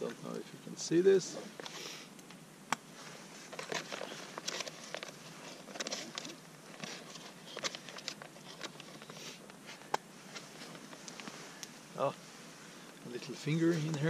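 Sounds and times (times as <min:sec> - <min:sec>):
bag crinkling: 0:03.1 - 0:11.7
spoon scraping in pouch: 0:03.4 - 0:11.5.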